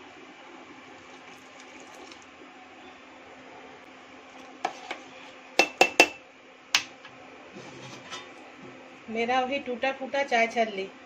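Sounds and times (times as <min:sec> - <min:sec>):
liquid bubbling and splashing: 0:00.9 - 0:02.4.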